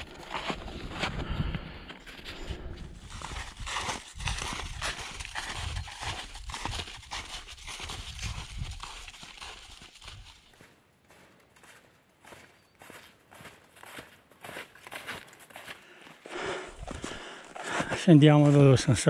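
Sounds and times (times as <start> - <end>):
snowshoe footsteps in wet snow: 2.3 - 19.0.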